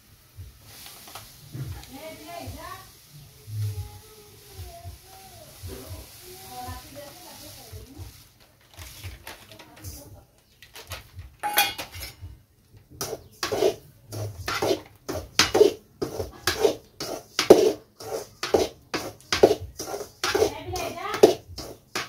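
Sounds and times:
metal spatula scraping semolina: 13.0 - 22.0.

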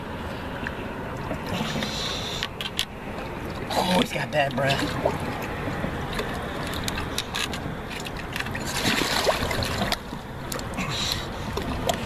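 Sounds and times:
water sloshing and trickling: 0.0 - 12.0.

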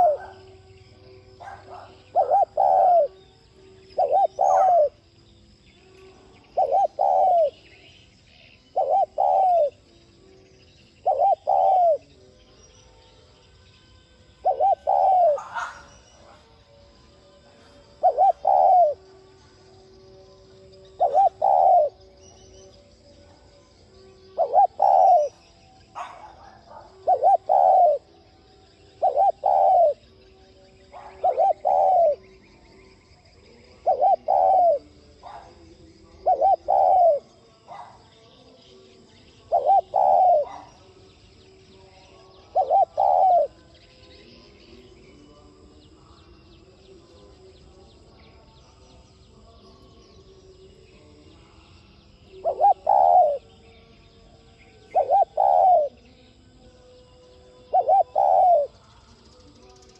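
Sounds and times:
dove cooing: 0.0 - 5.0, 6.4 - 9.9, 11.0 - 12.2, 14.3 - 16.7, 17.5 - 19.6, 20.8 - 22.6, 24.2 - 28.2, 28.8 - 32.7, 33.6 - 38.1, 39.2 - 41.0, 42.1 - 43.6, 52.3 - 53.5, 54.9 - 56.0, 57.6 - 58.8.

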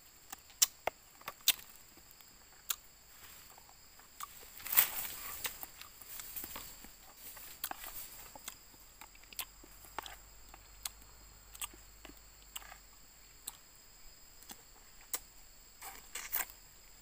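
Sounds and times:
insects droning: 0.0 - 17.0
person chewing: 0.3 - 13.7.

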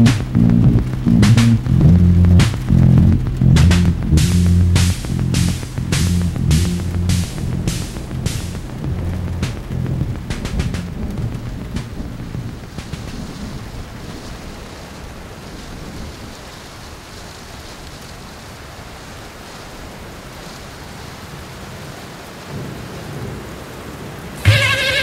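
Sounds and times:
loud warbling tone: 0.0 - 10.8, 24.4 - 25.0
thunder rumbling: 0.0 - 17.2, 24.4 - 25.0
steady rain: 0.0 - 25.0.

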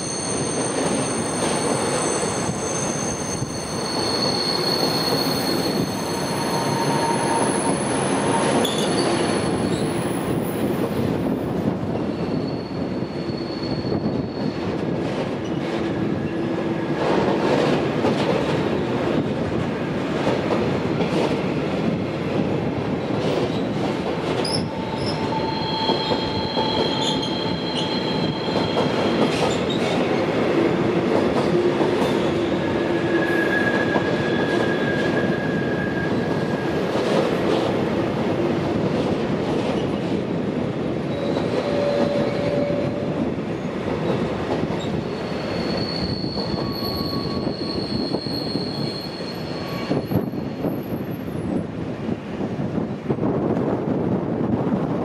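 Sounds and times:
train wheels squealing: 0.0 - 10.7, 11.9 - 14.8, 24.4 - 30.0, 32.0 - 36.8, 41.1 - 43.1, 44.8 - 51.4
train wheels rumbling on rails: 0.0 - 55.0.

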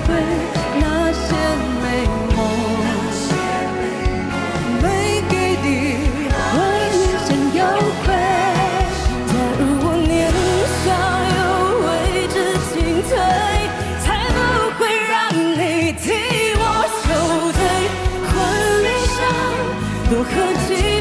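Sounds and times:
bass guitar: 0.0 - 14.8, 15.6 - 21.0
drums: 0.0 - 21.0
woman singing pop ballad: 0.0 - 21.0.

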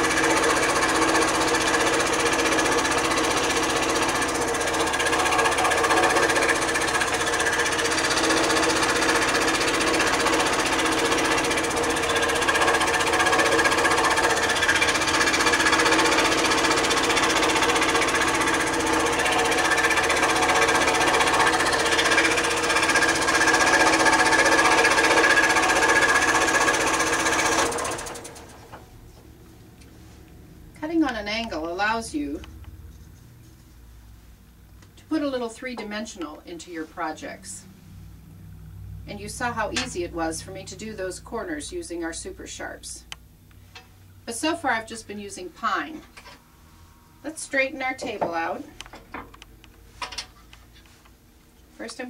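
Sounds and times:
scroll saw cutting wood: 0.0 - 28.7.

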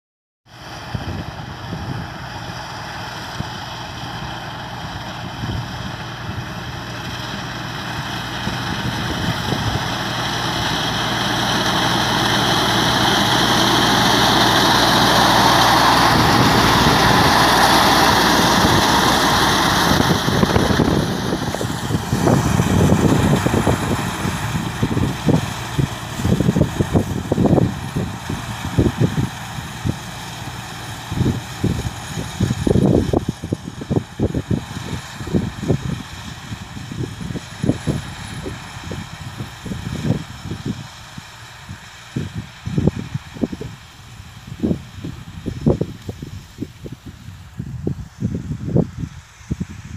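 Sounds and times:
reaper machine running: 2.4 - 40.8.

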